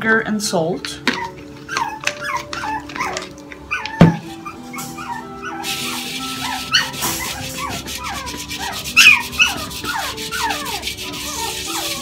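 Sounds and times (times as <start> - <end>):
dog whining and yipping: 1.1 - 12.0
cloth scrubbing metal pan: 4.6 - 12.0.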